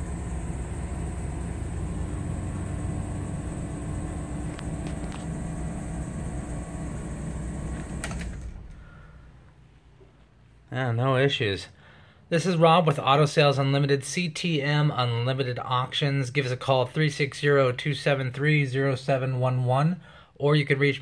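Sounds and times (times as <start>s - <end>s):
van engine idling: 0.0s - 9.3s
click: 4.4s - 5.3s.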